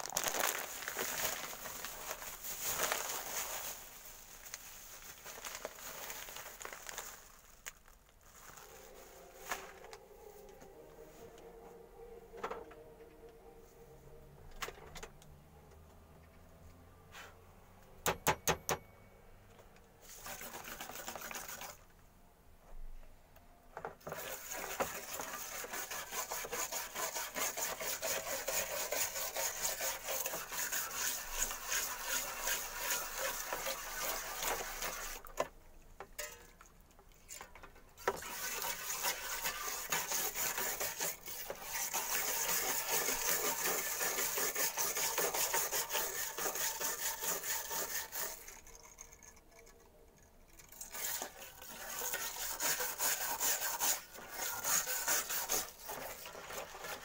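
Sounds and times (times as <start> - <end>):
wire brush scrubbing metal underwater: 20.0 - 21.9, 24.0 - 35.5, 36.2 - 57.0.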